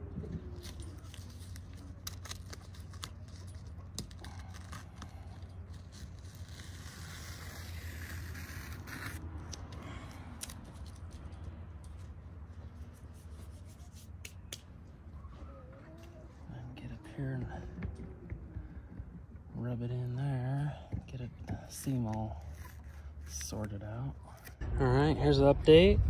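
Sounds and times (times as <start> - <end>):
hands rubbing fabric: 12.7 - 14.6.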